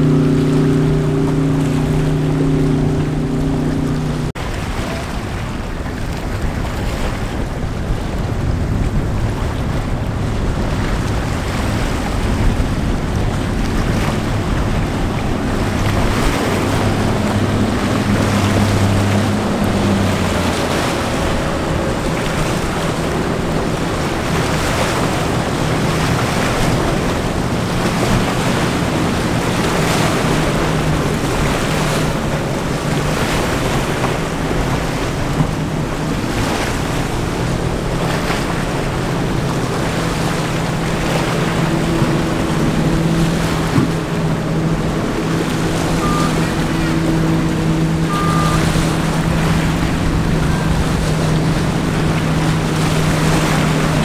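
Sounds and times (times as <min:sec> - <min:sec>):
powerboat engine hum: 0:00.0 - 0:54.0
waves washing: 0:00.0 - 0:54.0
wind buffeting microphone: 0:00.0 - 0:54.0
short high tones: 0:46.0 - 0:46.6, 0:48.1 - 0:48.8.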